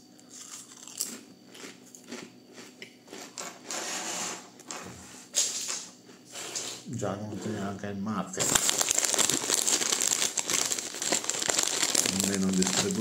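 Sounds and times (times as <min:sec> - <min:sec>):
man chewing a sandwich: 0:00.0 - 0:03.4.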